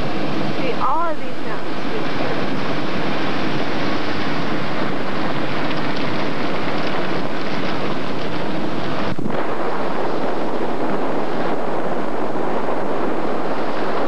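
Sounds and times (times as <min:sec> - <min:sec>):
car road noise: 0:00.0 - 0:14.0
wind buffeting microphone: 0:00.0 - 0:14.0.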